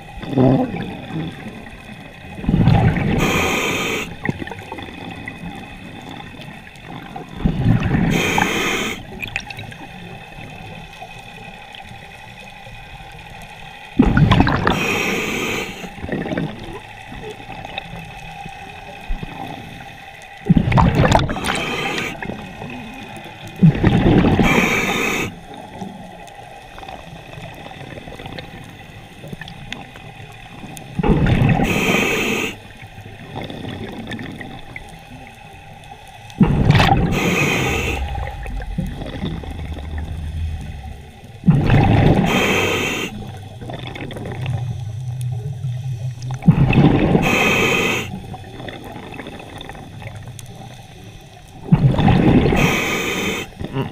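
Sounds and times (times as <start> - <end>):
faint steady hum: 0.0 - 53.9
underwater breath noise: 3.1 - 4.3, 8.0 - 9.1, 14.4 - 16.0, 21.2 - 22.3, 24.3 - 25.4, 31.5 - 32.8, 36.4 - 43.8, 47.0 - 48.3, 52.5 - 53.9
bubbling regulator exhaust: 14.0 - 16.8, 20.4 - 25.4, 36.4 - 50.3, 51.6 - 53.9.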